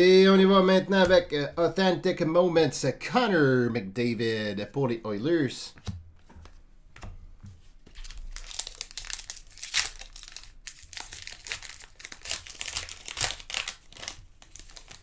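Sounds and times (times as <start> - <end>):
foil wrapper crinkling: 7.9 - 15.0.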